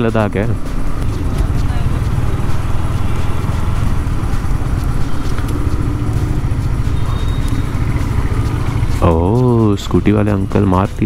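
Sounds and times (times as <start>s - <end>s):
motorcycle engine low rumble: 0.0s - 11.0s
road noise: 0.0s - 11.0s.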